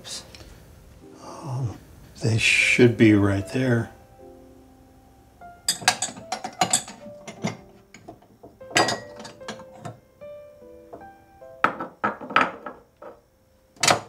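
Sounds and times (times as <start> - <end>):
soft background music: 0.0 - 14.0
ceramic cups clinking: 5.7 - 10.0.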